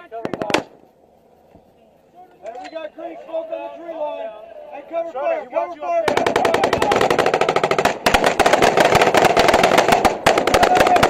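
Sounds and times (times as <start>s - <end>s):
automatic weapons fire: 6.0s - 11.0s.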